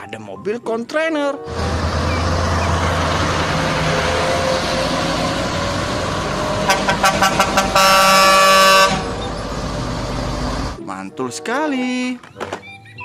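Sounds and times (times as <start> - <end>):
heavy truck engines: 1.4 - 10.9
long air horn blast: 1.5 - 9.2
air horn toots: 6.6 - 9.2.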